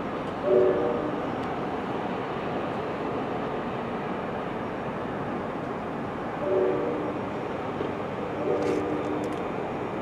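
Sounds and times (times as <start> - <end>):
diesel locomotive rumbling: 0.0 - 10.0
locomotive horn blast: 0.4 - 1.2, 6.4 - 7.2, 8.4 - 9.3.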